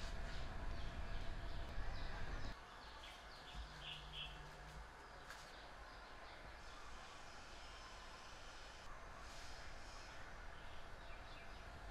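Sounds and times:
small birds chirping: 0:00.0 - 0:06.8.

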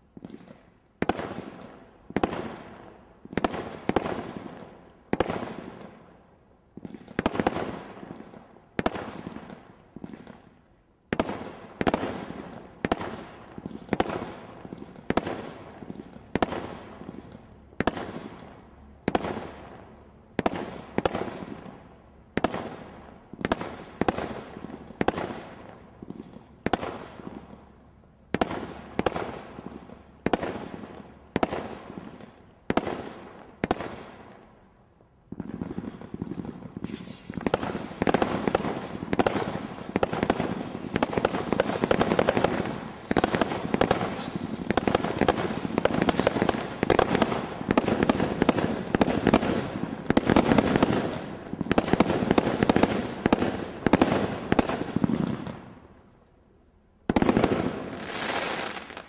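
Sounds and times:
firework bangs with crackle: 0:00.0 - 0:19.8, 0:20.4 - 0:55.7, 0:57.0 - 0:59.0
rapid firework barrage: 0:35.3 - 0:55.6
high firework whistle: 0:36.0 - 0:47.2.

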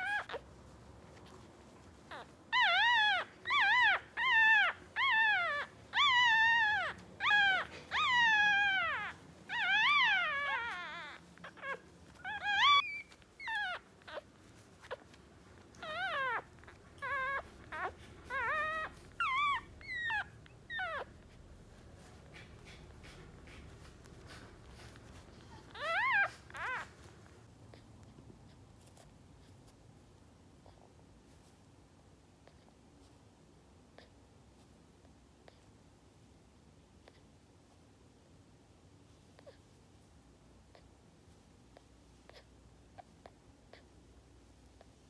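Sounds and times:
puppy crying: 0:00.0 - 0:00.5, 0:02.0 - 0:27.8.

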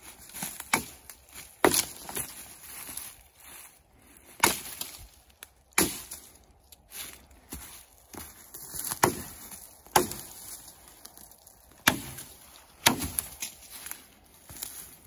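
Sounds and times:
axe chopping wood: 0:00.4 - 0:02.2, 0:04.4 - 0:05.0, 0:05.8 - 0:06.2, 0:08.8 - 0:10.4, 0:11.8 - 0:13.6.

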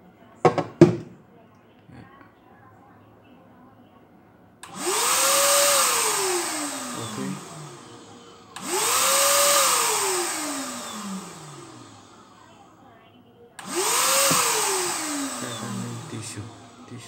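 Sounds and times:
spray gun blower motor whining: 0:04.6 - 0:12.4, 0:13.6 - 0:17.0.

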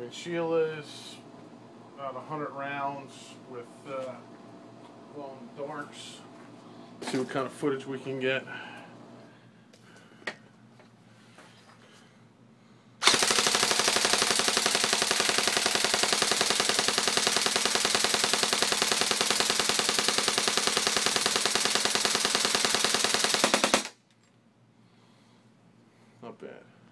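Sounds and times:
airsoft gun full-auto burst: 0:13.0 - 0:24.0.

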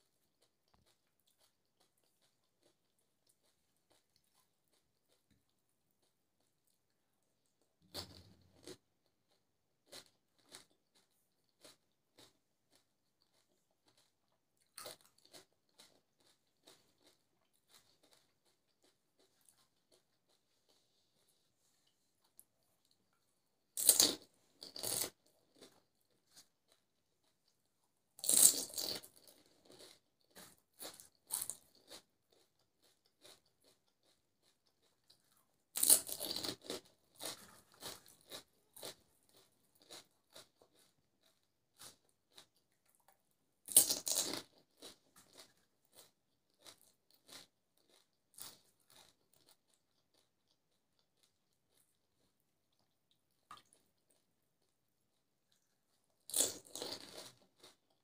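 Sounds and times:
chewing: 0:00.0 - 0:58.0
crisp fried shells crunching: 0:23.0 - 0:27.5, 0:28.2 - 0:42.7, 0:43.6 - 0:52.9, 0:56.2 - 0:58.0.

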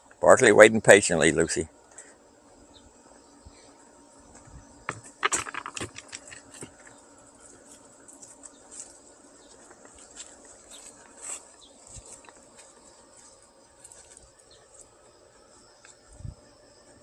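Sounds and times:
insect drone: 0:00.0 - 0:17.0
footsteps on gravel and wood: 0:04.3 - 0:14.9
light steps on grass: 0:06.4 - 0:15.2.

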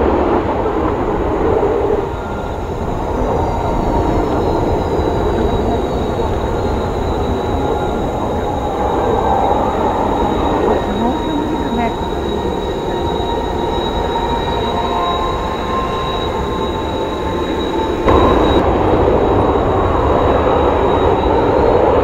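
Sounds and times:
jet engines roaring with whine: 0:00.0 - 0:22.0.

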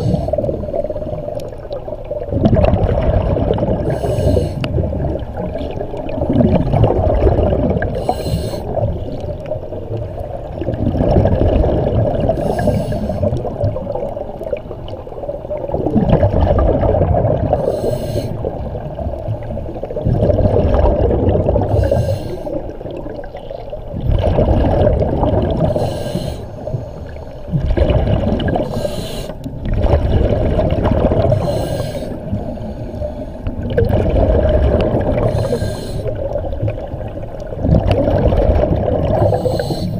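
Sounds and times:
gurgling bubbles: 0:00.0 - 0:39.9
regulator breathing hiss: 0:03.9 - 0:04.7, 0:08.0 - 0:08.8, 0:12.4 - 0:13.3, 0:17.6 - 0:18.5, 0:21.7 - 0:22.6, 0:25.7 - 0:27.4, 0:28.6 - 0:29.5, 0:31.4 - 0:33.5, 0:35.3 - 0:36.2, 0:39.2 - 0:39.9.

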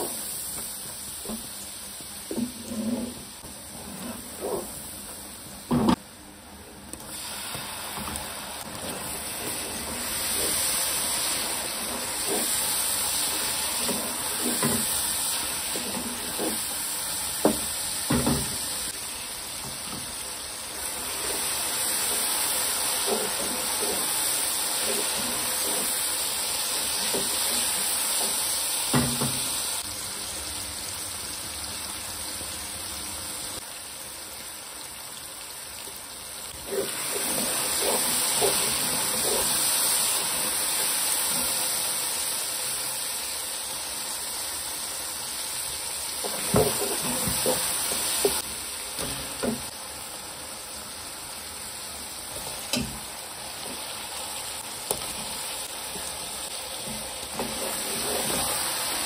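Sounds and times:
food sizzling in a pot: 0:00.0 - 0:59.0
wooden spoon stirring and scraping: 0:02.3 - 0:05.0, 0:08.0 - 0:17.6, 0:21.0 - 0:26.3, 0:36.7 - 0:40.6, 0:46.2 - 0:48.5, 0:56.8 - 0:58.8.

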